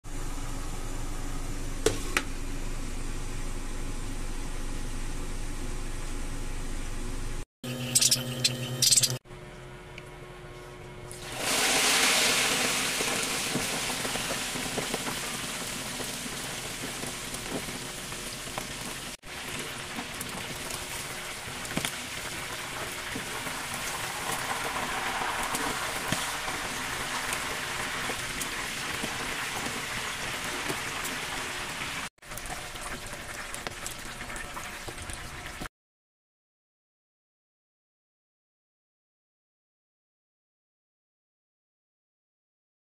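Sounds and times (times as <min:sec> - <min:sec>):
chicken sizzling in hot oil: 0:11.2 - 0:35.7.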